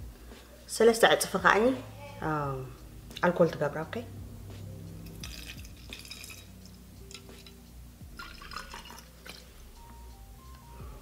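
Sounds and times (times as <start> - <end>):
liquid pouring into a cup: 5.0 - 7.6, 8.2 - 9.5.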